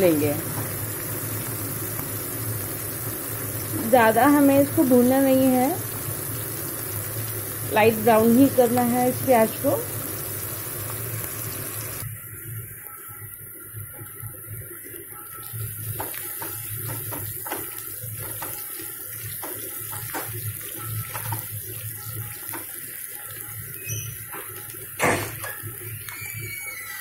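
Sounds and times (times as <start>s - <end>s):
onions sizzling in oil: 0.0s - 27.0s
knock on pan: 16.0s - 18.6s, 19.4s - 20.4s, 24.4s - 25.6s.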